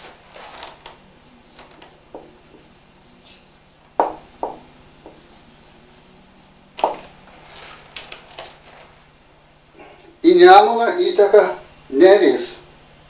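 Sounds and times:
marker writing on whiteboard: 1.4 - 7.2.

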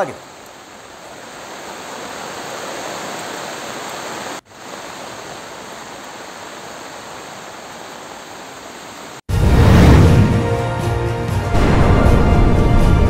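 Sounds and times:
river water rushing: 0.0 - 9.2.

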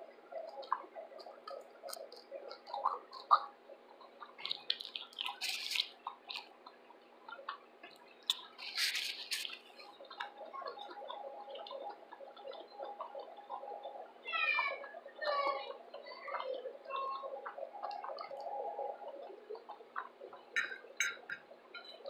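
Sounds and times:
chewing and lip-smacking: 0.4 - 13.6.

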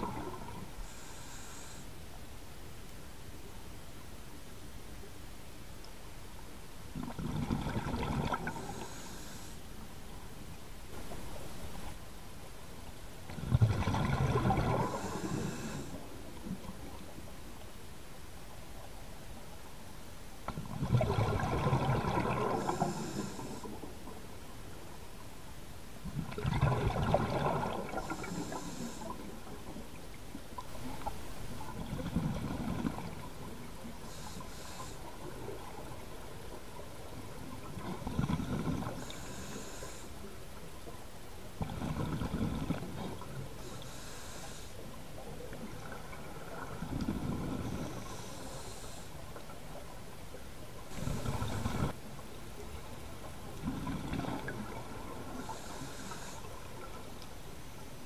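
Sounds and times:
underwater exhale bubbling: 0.0 - 1.8, 7.0 - 9.5, 13.3 - 17.0, 20.5 - 23.9, 26.0 - 29.9, 30.7 - 40.1, 41.6 - 49.8, 50.8 - 52.0, 52.8 - 57.0
regulator inhalation hiss: 0.8 - 1.9, 8.6 - 9.6, 14.9 - 16.0, 22.6 - 23.7, 28.0 - 29.2, 34.1 - 35.1, 39.0 - 40.2, 43.6 - 44.8, 47.9 - 49.2, 55.4 - 56.5.

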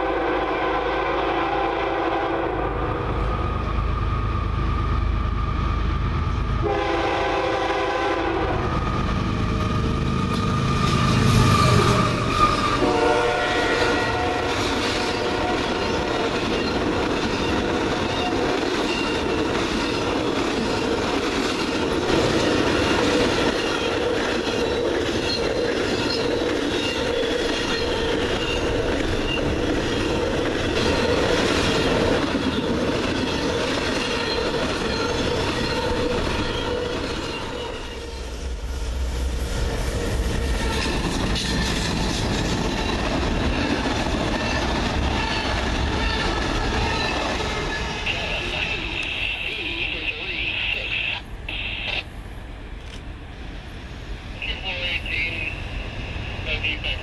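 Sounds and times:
train horn: 0.0 - 3.1, 6.6 - 8.8, 10.3 - 16.4
train wheels clattering on rails: 13.7 - 37.9, 40.0 - 49.2.

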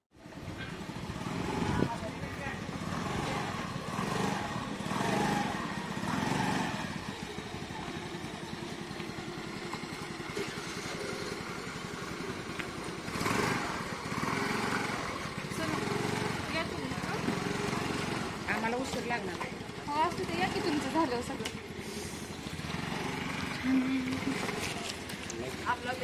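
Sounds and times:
scooter engine idling: 0.2 - 26.0
voices: 0.2 - 26.0.

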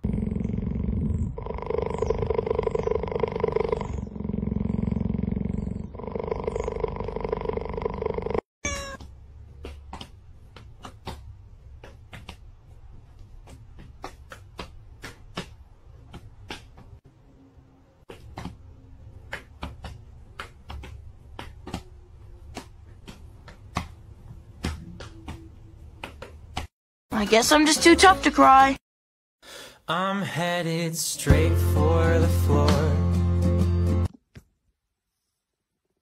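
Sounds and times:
cheetah purring: 0.0 - 8.4.

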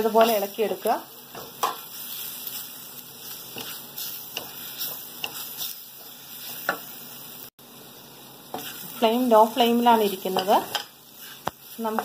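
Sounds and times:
soft sizzle: 0.0 - 12.0
spatula scraping a pan: 1.3 - 6.9, 8.5 - 9.1, 9.9 - 12.0.

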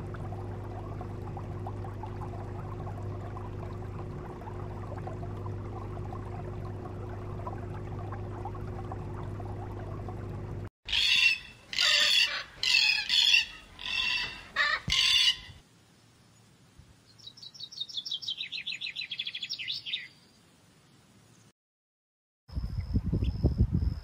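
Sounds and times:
birds squawking harshly: 10.9 - 15.6.

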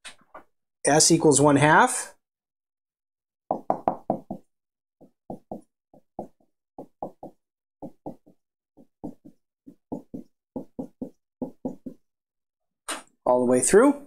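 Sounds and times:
marker tapping on whiteboard: 3.5 - 12.1.

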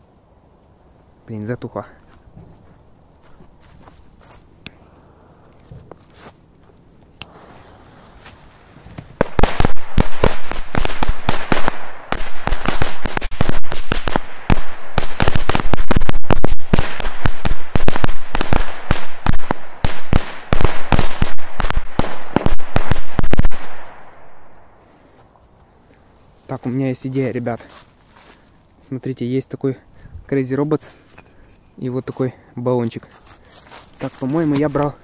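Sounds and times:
fuse hissing: 7.2 - 9.1
firecrackers banging rapidly: 9.2 - 23.9.

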